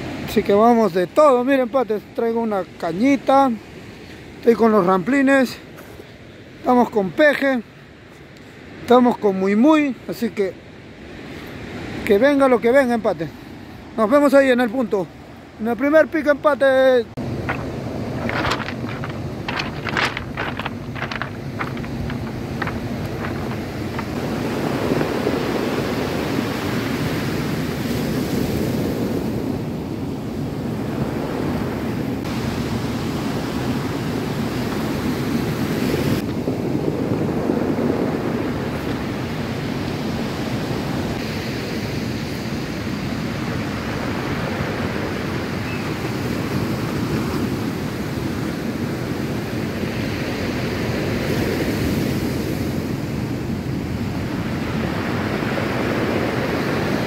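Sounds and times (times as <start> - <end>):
surf breaking on cobbles: 17.2 - 25.2
wind buffeting microphone: 17.2 - 49.8.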